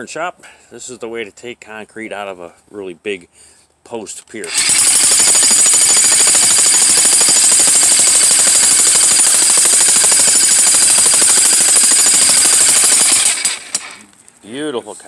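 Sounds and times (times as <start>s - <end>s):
jackhammer hammering concrete: 4.5s - 14.0s.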